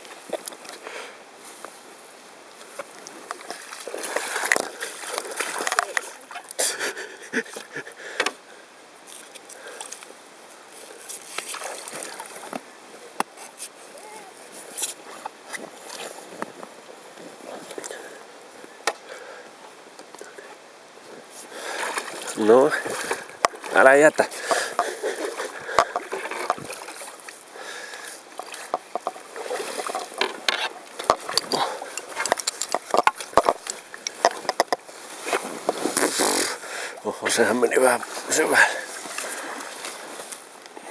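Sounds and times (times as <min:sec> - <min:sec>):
water splashing and trickling: 0:00.0 - 0:40.9
short splashes or knocks: 0:03.4 - 0:06.4, 0:28.4 - 0:36.4
gear knocking against canoe: 0:22.8 - 0:27.1, 0:28.4 - 0:35.8.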